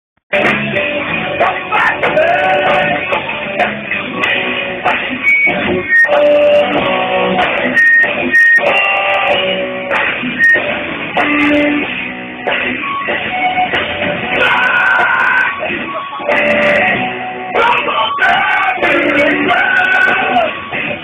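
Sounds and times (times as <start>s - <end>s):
live rock band playing: 0.3s - 21.0s.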